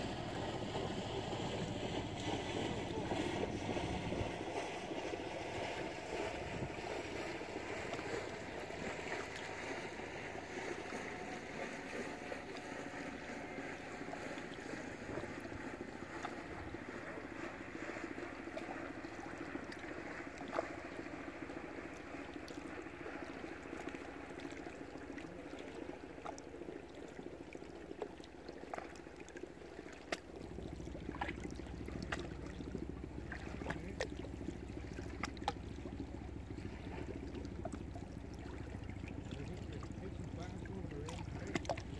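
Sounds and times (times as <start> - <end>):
low rumble: 0.0 - 9.4
water lapping around boats: 0.0 - 41.9.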